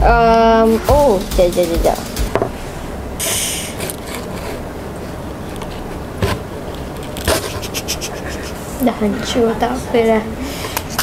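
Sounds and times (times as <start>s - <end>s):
steady hiss: 0.8s - 4.0s.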